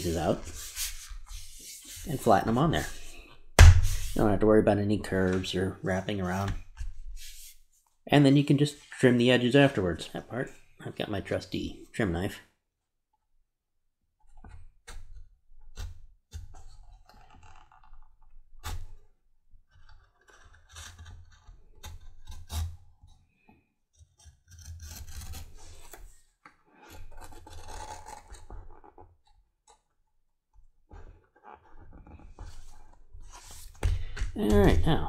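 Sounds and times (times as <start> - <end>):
knife slicing through leather: 24.2 - 26.2.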